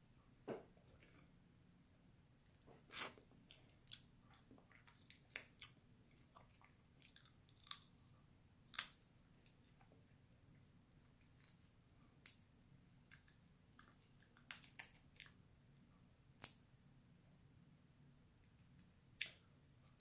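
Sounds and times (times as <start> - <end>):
soft chewing: 2.5 - 12.4, 13.0 - 15.4
crab shells cracking: 7.0 - 8.0.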